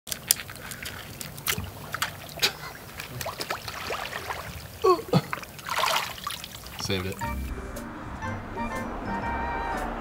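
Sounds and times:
plinking water drips: 0:00.1 - 0:07.2
seawater lapping and trickling: 0:00.1 - 0:07.2.

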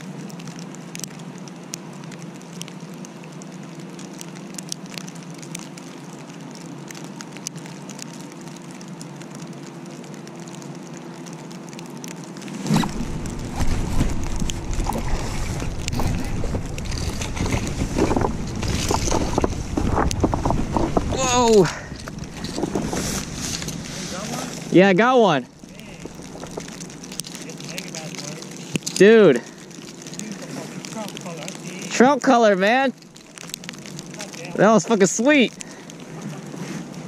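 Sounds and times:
steady low hum: 0:00.0 - 0:34.9
wind rumble on microphone: 0:12.4 - 0:24.8, 0:25.4 - 0:28.9
microphone handling noise: 0:12.5 - 0:24.8, 0:25.4 - 0:27.4.

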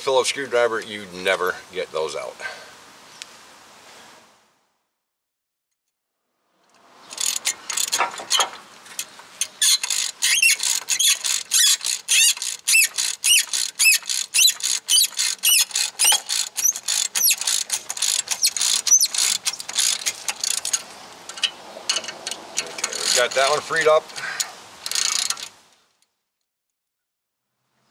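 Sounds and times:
hand ratchet clicking: 0:07.1 - 0:25.6.

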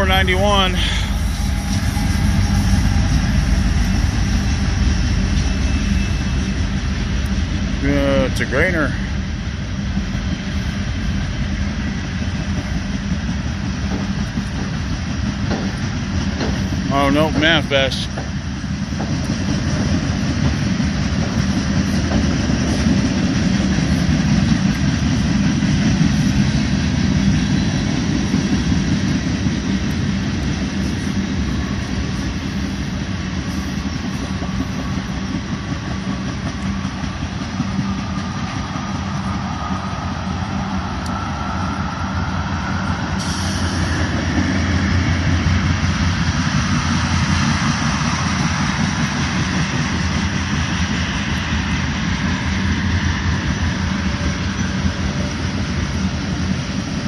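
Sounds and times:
faint rising whine: 0:00.0 - 0:13.6, 0:37.4 - 0:57.0
freight train wheels rumbling on rail: 0:00.0 - 0:57.0.

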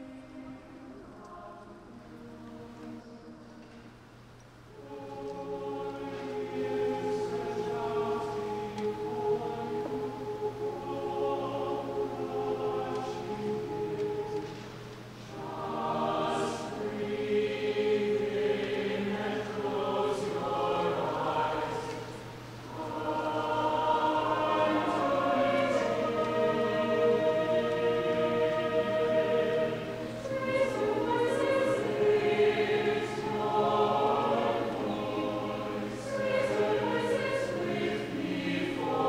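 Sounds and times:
choir singing: 0:00.0 - 0:39.0.

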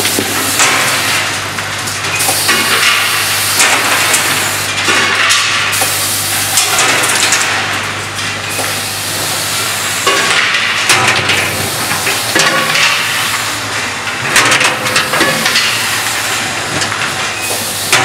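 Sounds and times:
vibratory bowl feeder hum: 0:00.0 - 0:18.0
clatter of caps and parts: 0:10.0 - 0:18.0.

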